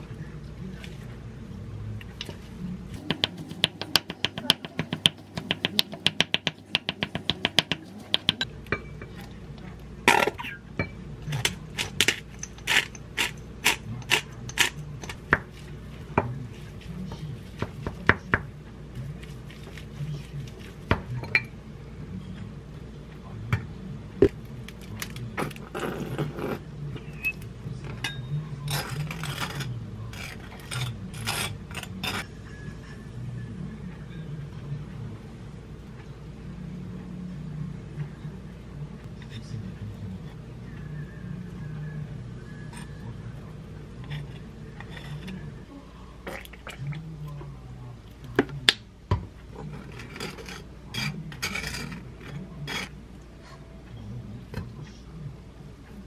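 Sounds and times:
spatula scraping bowl: 0:11.3 - 0:15.6, 0:49.6 - 0:53.0.

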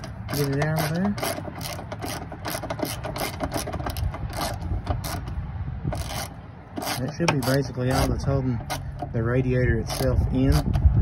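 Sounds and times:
ratchet wrench clicking: 0:00.0 - 0:10.8.

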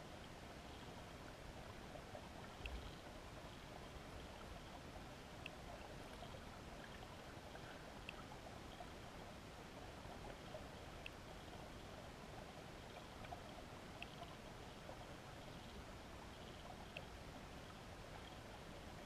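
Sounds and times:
faint clicks: 0:02.4 - 0:03.1, 0:05.4 - 0:08.9, 0:10.2 - 0:12.0, 0:12.8 - 0:17.2.

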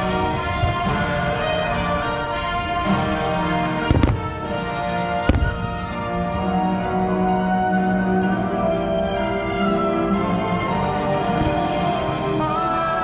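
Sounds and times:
fireworks bangs: 0:00.0 - 0:06.2
music playing: 0:00.0 - 0:13.0.

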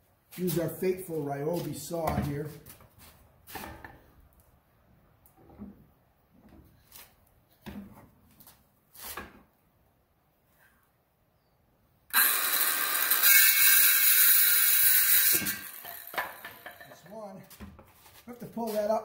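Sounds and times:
circular saw cutting wood: 0:12.1 - 0:17.4.

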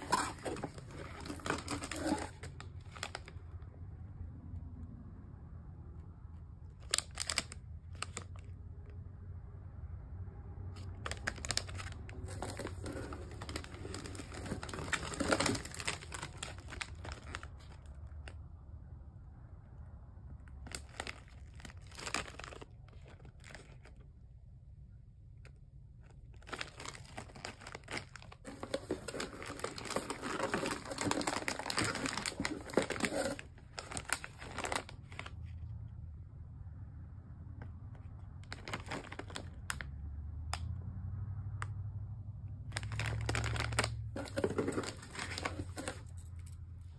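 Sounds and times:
snack bags crinkling: 0:00.0 - 0:03.5, 0:06.7 - 0:08.6, 0:10.8 - 0:18.4, 0:20.5 - 0:24.1, 0:26.0 - 0:35.5, 0:38.4 - 0:39.9, 0:42.7 - 0:46.6.

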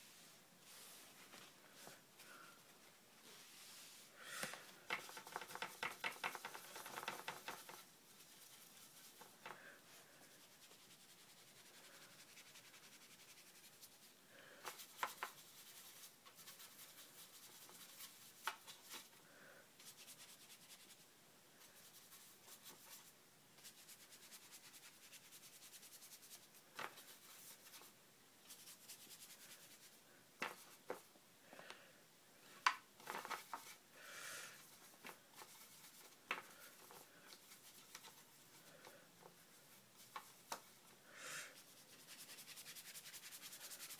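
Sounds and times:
paintbrush scratching on paper: 0:05.0 - 0:19.1, 0:34.6 - 0:38.8, 0:41.6 - 0:43.9.

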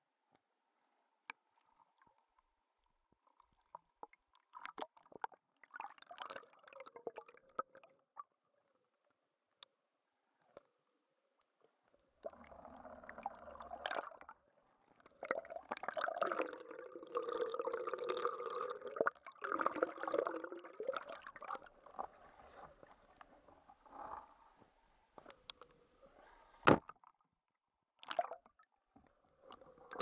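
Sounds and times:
water sloshing and gurgling: 0:01.6 - 0:08.4, 0:12.0 - 0:24.5, 0:28.0 - 0:30.0.

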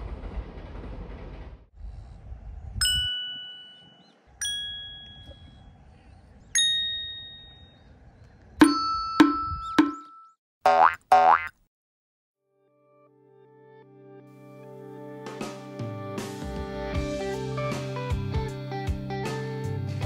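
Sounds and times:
ringing chime dings: 0:02.8 - 0:05.6, 0:06.6 - 0:07.8, 0:08.6 - 0:10.4.

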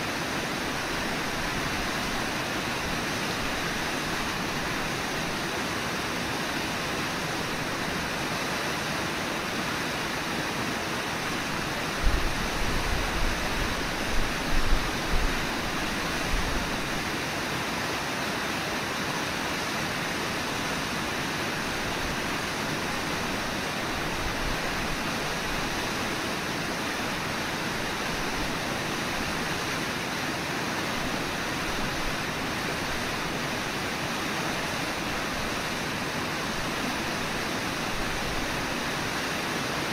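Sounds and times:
river rushing over shallows: 0:00.0 - 0:39.9.

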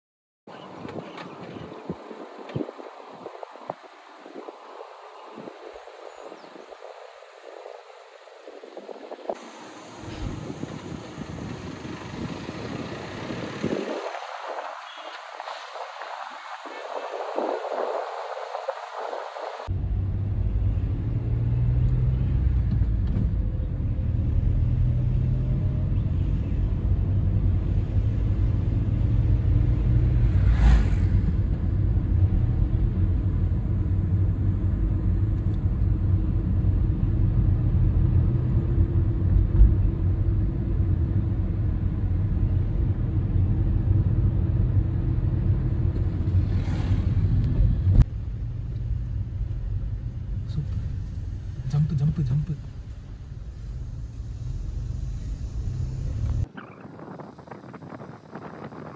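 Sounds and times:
passing whooshes: 0:27.6 - 0:32.6, 0:45.4 - 0:48.1.

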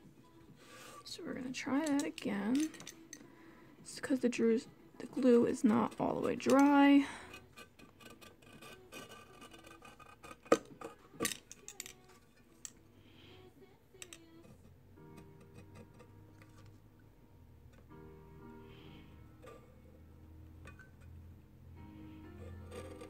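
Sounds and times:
faint background music: 0:00.0 - 0:23.0
box cutter clicking and scraping: 0:07.3 - 0:12.0.

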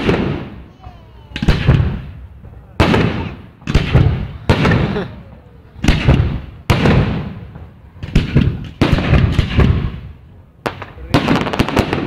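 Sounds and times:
fireworks bursting with echo: 0:00.0 - 0:12.0.

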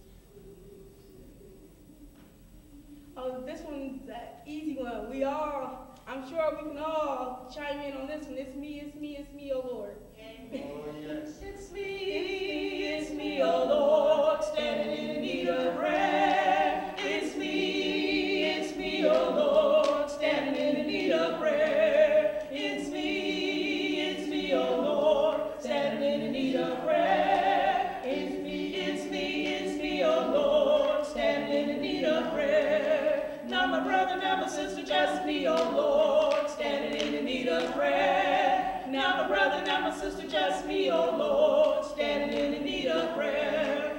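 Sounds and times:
people singing a church song: 0:10.4 - 0:43.9
hands clapping: 0:19.0 - 0:20.1, 0:35.4 - 0:37.8, 0:41.6 - 0:42.6.

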